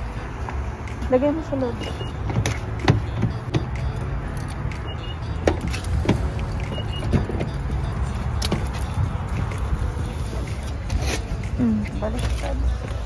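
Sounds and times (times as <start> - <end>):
car door clicks and knocks: 2.2 - 3.8, 5.4 - 6.4.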